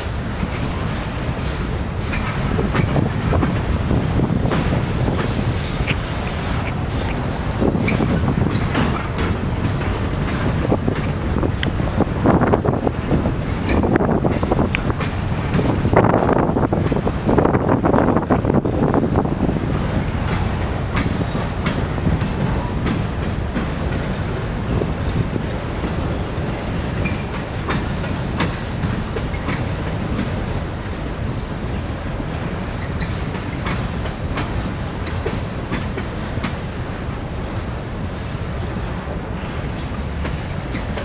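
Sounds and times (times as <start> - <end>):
train wheels rumbling on rail: 0.0 - 41.0
wheels clicking over rail joints: 0.0 - 41.0
high wheel squeals: 6.4 - 8.9, 13.6 - 14.1, 20.2 - 21.3, 27.0 - 27.4, 32.8 - 33.5, 35.0 - 35.5, 40.5 - 41.0.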